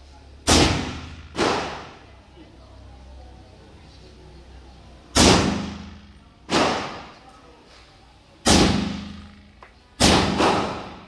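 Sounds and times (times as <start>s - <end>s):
suppressed rifle shots: 0.5s - 1.9s, 10.0s - 11.0s.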